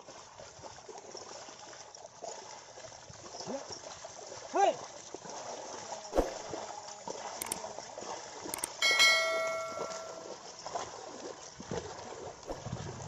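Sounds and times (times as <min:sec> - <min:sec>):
thud: 0:06.2 - 0:06.4
metal bell ringing: 0:08.6 - 0:10.3.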